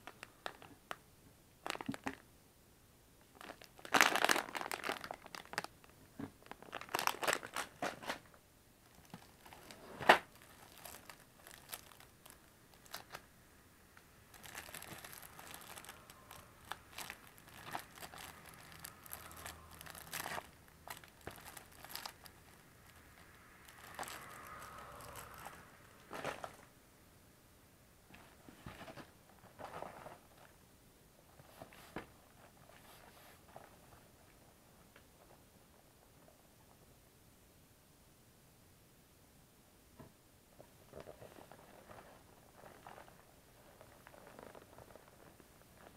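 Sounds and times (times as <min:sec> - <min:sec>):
plastic packaging crinkling: 0:00.0 - 0:01.0, 0:01.6 - 0:02.2, 0:03.3 - 0:13.2, 0:14.3 - 0:26.7, 0:40.9 - 0:45.9.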